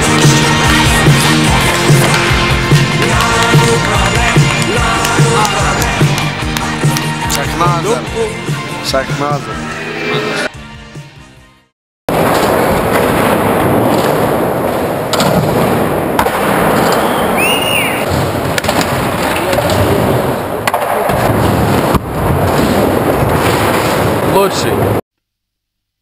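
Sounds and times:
skateboard clacks: 1.6 - 6.3
skateboard wheels rolling: 12.1 - 25.0.

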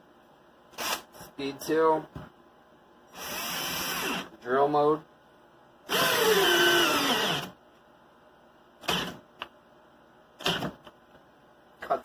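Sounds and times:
cordless drill driving screw: 3.2 - 4.3, 5.9 - 7.5, 8.8 - 9.2, 10.4 - 10.7.

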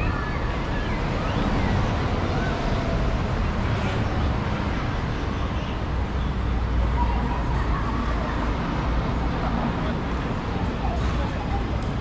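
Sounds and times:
passersby voices: 0.0 - 12.0
traffic noise: 0.0 - 12.0.

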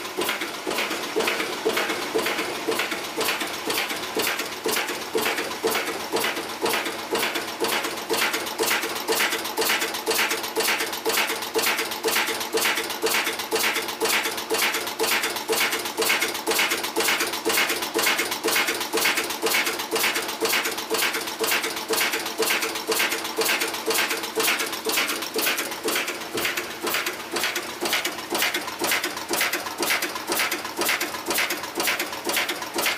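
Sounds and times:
heading machine knocking: 0.1 - 32.9.

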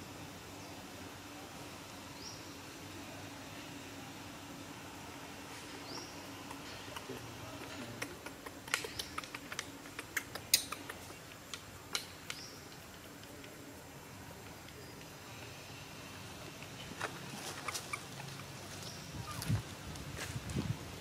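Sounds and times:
sharp clicks and snaps: 6.4 - 13.6.

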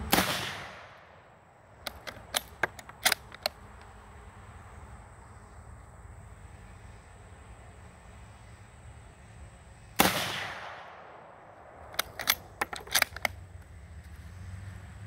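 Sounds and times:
rifle shot: 0.0 - 1.2, 10.0 - 13.2
rifle bolt clicking: 1.8 - 3.6, 11.8 - 13.4.

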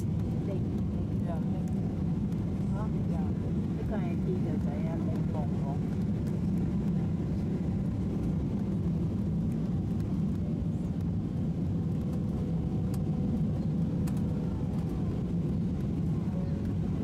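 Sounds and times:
airliner cabin rumble: 0.0 - 17.0.

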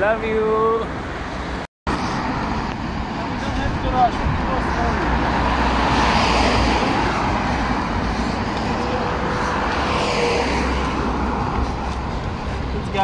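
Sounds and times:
road vehicle rumble and hiss: 0.5 - 13.0.

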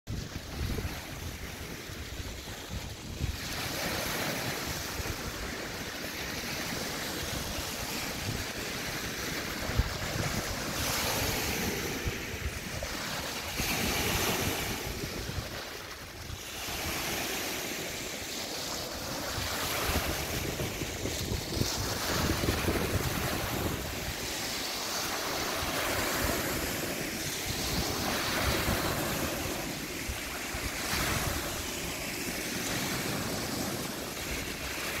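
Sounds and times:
waves washing on pebble beach: 0.1 - 35.0
wind buffeting microphone: 0.1 - 35.0.

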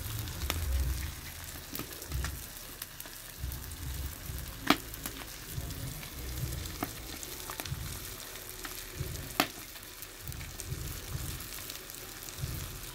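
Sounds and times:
low rumbles: 0.0 - 2.5
coals popping: 0.0 - 12.9
fish sizzling on a grill: 0.0 - 12.9.

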